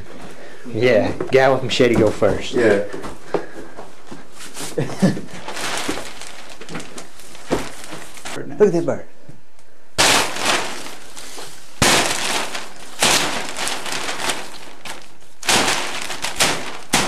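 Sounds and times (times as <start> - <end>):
plastic crinkling and rustling: 4.0 - 8.4, 10.0 - 17.0
machete hitting plastic sheeting: 5.4 - 8.3, 10.0 - 17.0.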